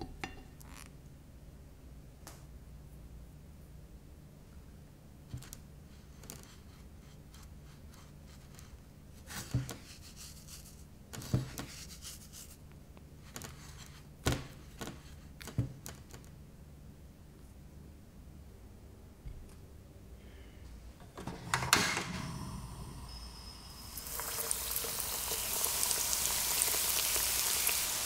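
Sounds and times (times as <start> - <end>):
bread crumbs rustling and scratching: 5.9 - 12.6.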